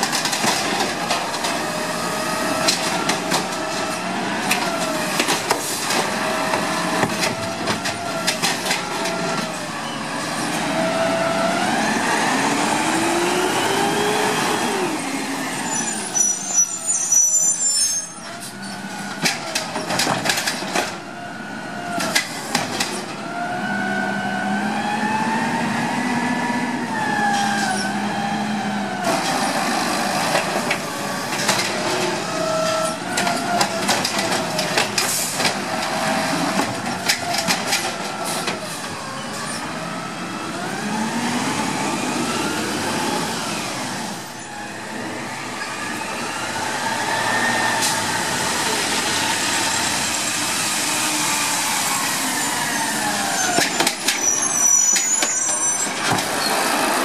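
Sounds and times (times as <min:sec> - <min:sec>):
truck engine revving: 0:08.8 - 0:16.2, 0:39.3 - 0:53.7
carts knocking and clanking: 0:19.1 - 0:21.0, 0:33.1 - 0:38.6.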